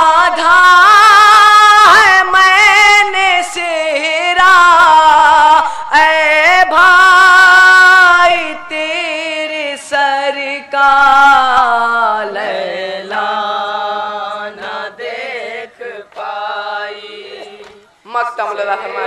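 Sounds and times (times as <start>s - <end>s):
young men chanting lament: 0.0s - 19.0s.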